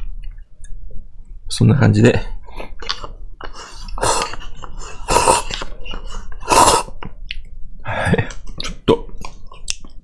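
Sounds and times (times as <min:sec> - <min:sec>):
mouth sound: 0:02.8 - 0:07.4
person slurping noodles: 0:03.5 - 0:05.8, 0:06.4 - 0:07.0.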